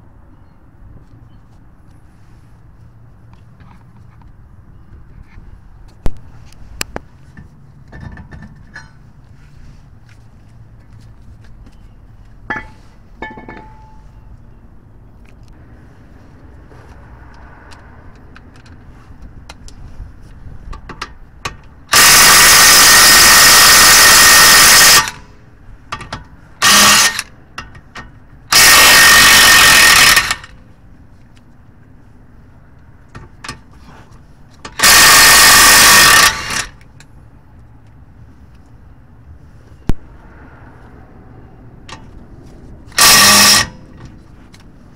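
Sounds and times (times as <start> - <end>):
impact wrench hammering: 21.9 - 25.2, 26.0 - 27.8, 28.5 - 30.5, 34.7 - 36.7, 43.0 - 44.0.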